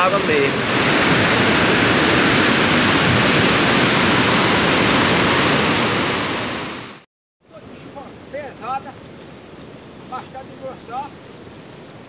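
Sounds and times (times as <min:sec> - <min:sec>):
river rushing through rapids: 0:00.0 - 0:07.0.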